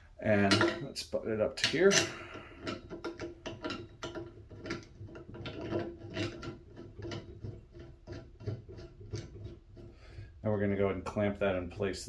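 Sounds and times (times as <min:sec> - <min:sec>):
clamp clicking and rattling: 0:01.6 - 0:09.9.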